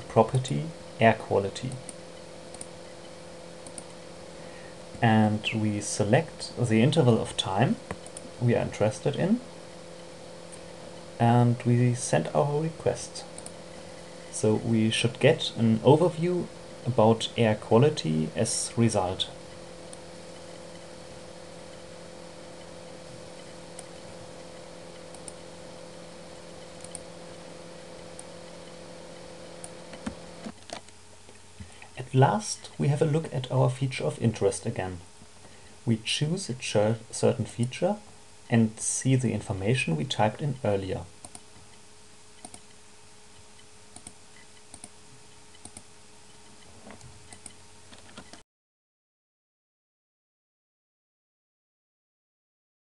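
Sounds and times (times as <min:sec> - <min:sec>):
steady hum: 0:00.0 - 0:48.4
computer mouse clicks: 0:01.7 - 0:02.8, 0:03.6 - 0:04.0, 0:07.9 - 0:08.3, 0:13.4 - 0:13.6, 0:24.9 - 0:25.4, 0:26.6 - 0:27.1, 0:41.2 - 0:41.8, 0:42.4 - 0:42.8, 0:43.6 - 0:48.4.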